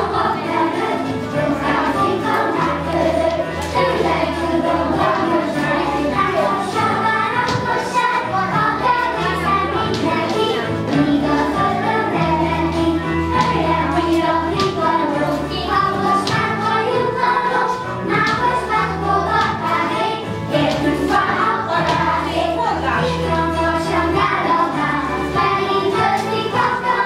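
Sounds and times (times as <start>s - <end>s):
children singing over dance beat: 0.0s - 27.0s.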